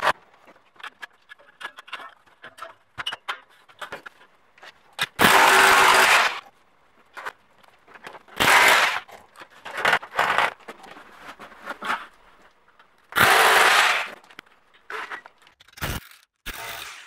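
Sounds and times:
power drill drilling: 13.2s - 14.2s.

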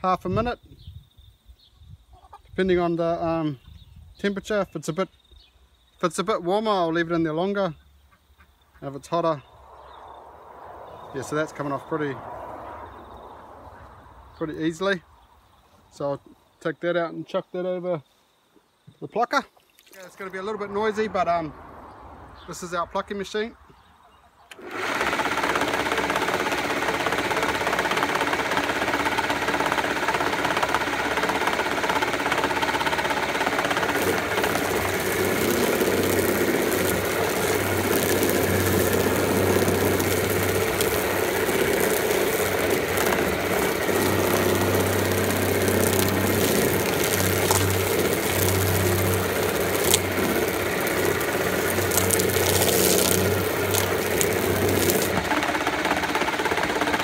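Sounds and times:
chicken plucking machine running: 24.5s - 57.0s
deeper machine hum: 28.3s - 57.0s.

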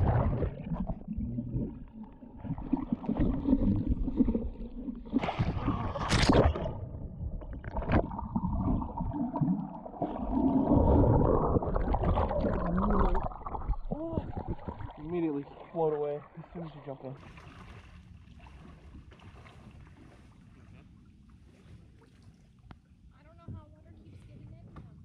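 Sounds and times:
underwater bubbling and gurgling: 0.0s - 19.1s
swimmer churning water underwater: 0.0s - 22.7s.

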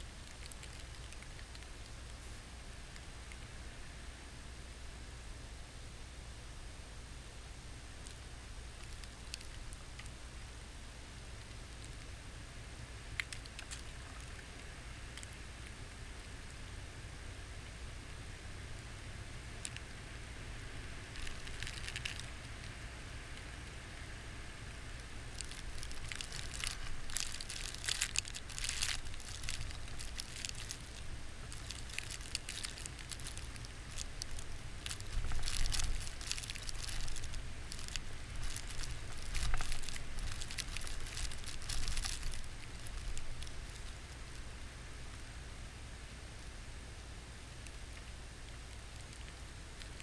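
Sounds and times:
blizzard wind rumbling on microphone: 24.5s - 45.0s
snow pattering against camera: 25.3s - 44.5s.

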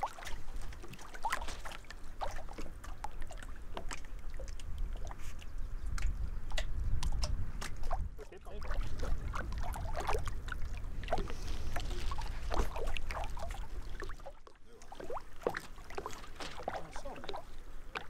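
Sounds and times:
wind rumbling on microphone: 0.0s - 14.2s
small waves lapping and splashing: 0.0s - 18.0s.

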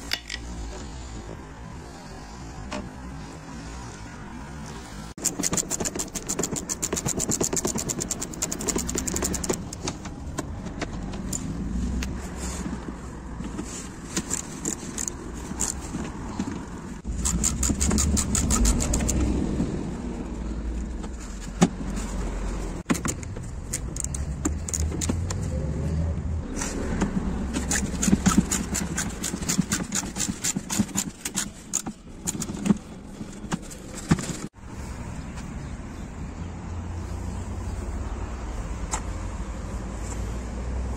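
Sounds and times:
ratchet wrench clicking: 5.2s - 9.8s.

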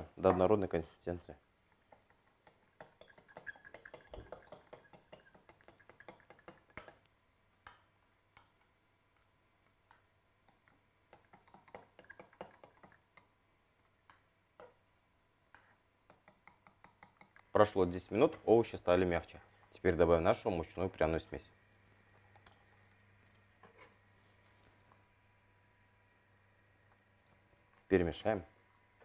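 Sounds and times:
fork clicking against glass bowl: 2.0s - 7.1s, 10.5s - 13.3s.

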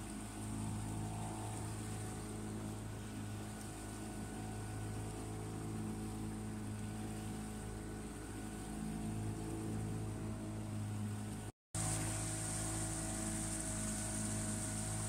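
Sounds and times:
boat engine humming: 0.0s - 15.0s
water hissing: 11.8s - 15.0s.

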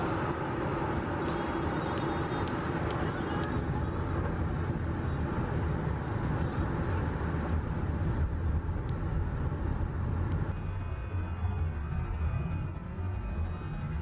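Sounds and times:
car road and engine noise: 0.0s - 14.0s.

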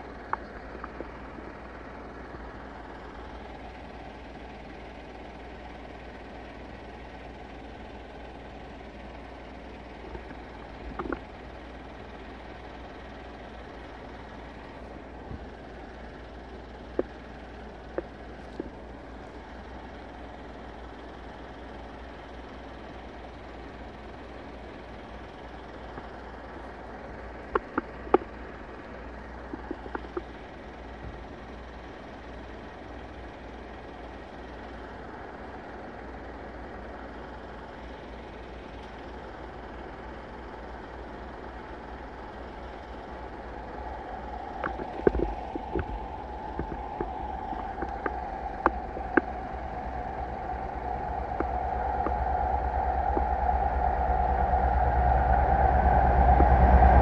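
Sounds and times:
train engine drone: 0.0s - 57.0s
wind rumble on microphone: 43.8s - 57.0s.

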